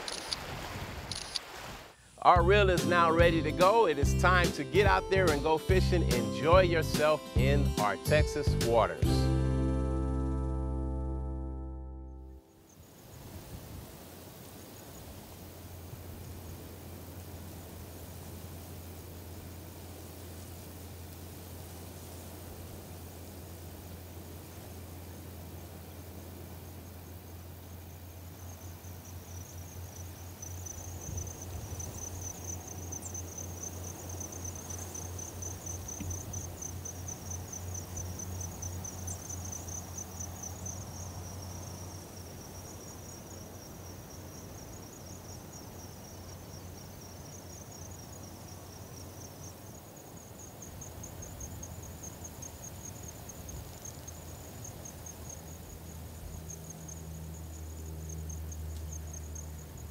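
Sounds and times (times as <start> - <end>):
insects trilling: 12.4 - 59.9.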